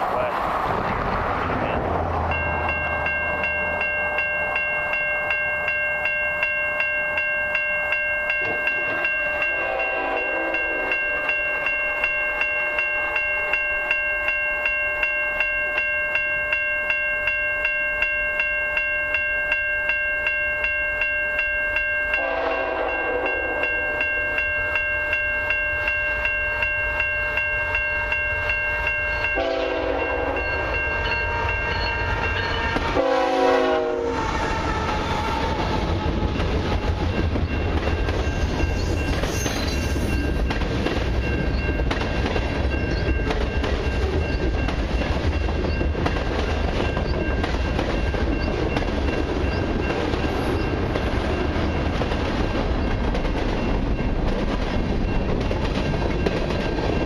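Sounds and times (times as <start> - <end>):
level crossing bell ringing: 2.3 - 33.6
locomotive horn blasts: 9.4 - 11.0, 22.1 - 23.7, 29.2 - 35.7.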